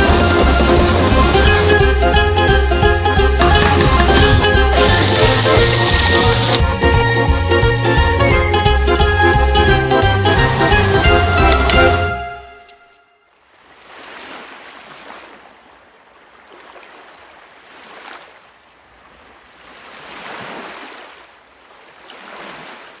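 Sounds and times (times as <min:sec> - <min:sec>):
music: 0:00.0 - 0:13.2
sea waves washing: 0:13.5 - 0:23.0.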